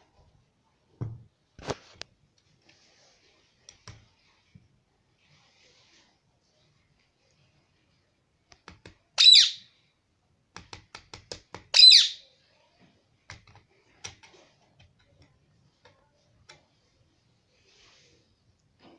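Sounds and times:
parrot squawking: 0:09.2 - 0:09.7, 0:11.7 - 0:12.2.

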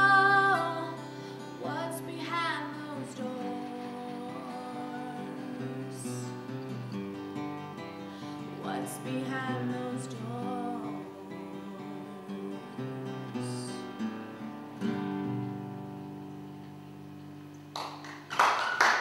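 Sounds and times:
woman singing: 0:00.0 - 0:06.6, 0:08.4 - 0:14.0
acoustic guitar picking: 0:00.0 - 0:17.7
people clapping: 0:17.7 - 0:19.0.

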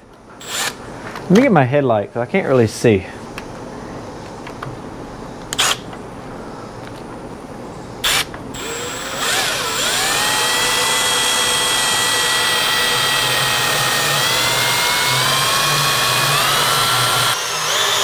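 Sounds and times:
power drill whine: 0:00.4 - 0:00.8, 0:05.6 - 0:05.8, 0:08.0 - 0:18.0.

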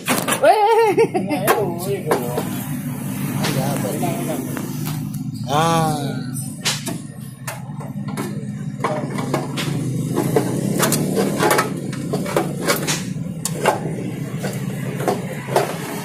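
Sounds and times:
metal knocks and clatter: 0:06.6 - 0:16.0.

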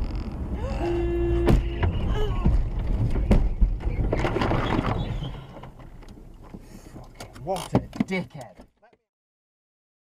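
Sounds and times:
car rumble: 0:00.0 - 0:08.5
car horn: 0:01.0 - 0:02.1
car knocks and thumps: 0:01.3 - 0:05.9.

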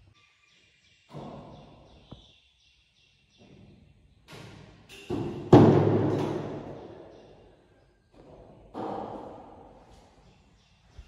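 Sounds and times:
knocks in empty room: 0:04.4 - 0:07.3, 0:08.2 - 0:09.8.

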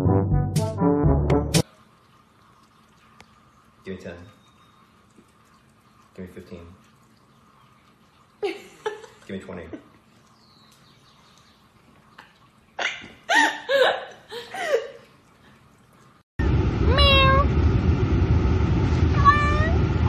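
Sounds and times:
cat meowing: 0:16.9 - 0:17.4, 0:19.2 - 0:19.8
kitten meowing: 0:16.9 - 0:17.4, 0:19.2 - 0:19.8.

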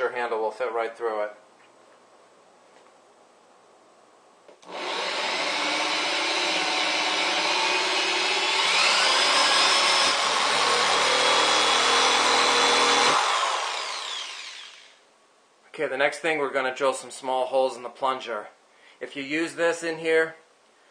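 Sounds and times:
electric drill boring through plastic: 0:04.6 - 0:15.0.

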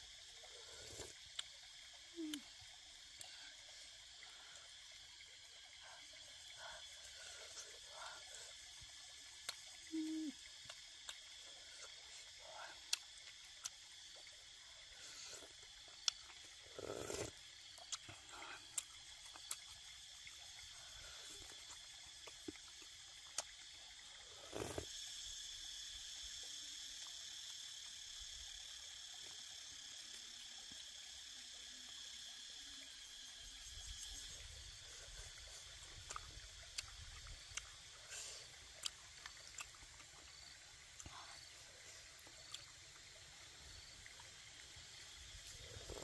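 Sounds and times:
high-pitched insect drone: 0:00.0 - 0:46.0
chewing: 0:16.0 - 0:19.8, 0:36.0 - 0:37.7, 0:38.8 - 0:39.8.

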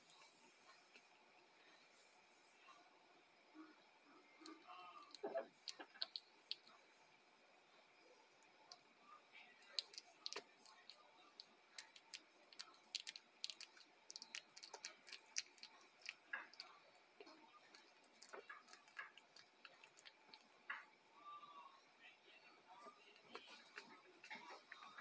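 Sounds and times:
puppies suckling wet clicking: 0:04.4 - 0:06.8, 0:09.6 - 0:21.0.

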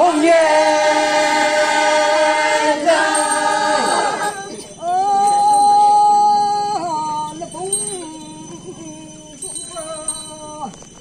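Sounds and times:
women singing: 0:00.0 - 0:06.9.

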